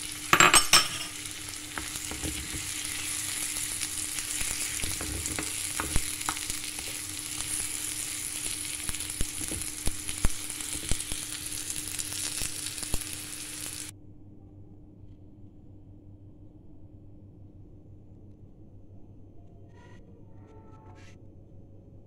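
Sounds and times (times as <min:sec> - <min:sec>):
vegetables sizzling in a frying pan: 0:00.0 - 0:13.9.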